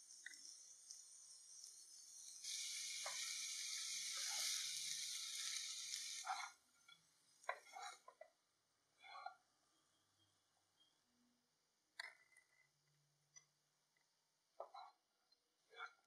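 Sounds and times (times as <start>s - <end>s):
rice sizzling in a pan: 0.0s - 8.1s.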